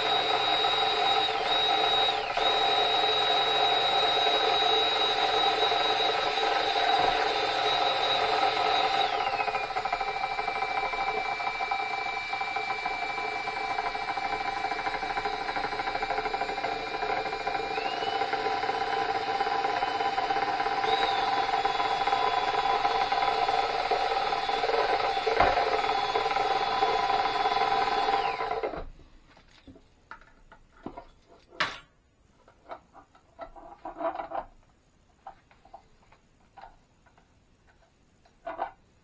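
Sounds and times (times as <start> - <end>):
cordless drill mixing paint: 0.0 - 29.0.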